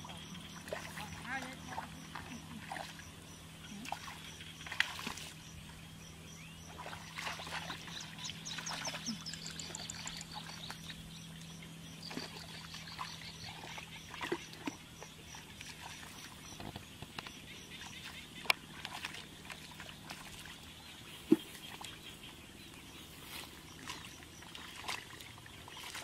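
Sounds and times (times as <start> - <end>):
high repeating chirp: 8.1 - 11.0.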